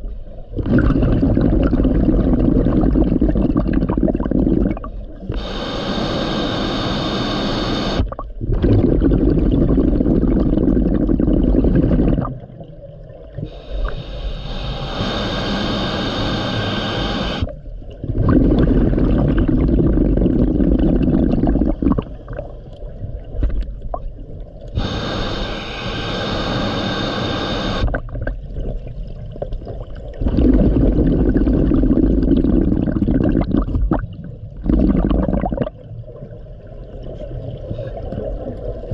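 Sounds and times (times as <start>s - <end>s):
exhaled bubbles gurgling: 0.0s - 38.9s
regulator inhale hissing: 5.3s - 8.0s, 13.4s - 17.5s, 24.8s - 27.9s.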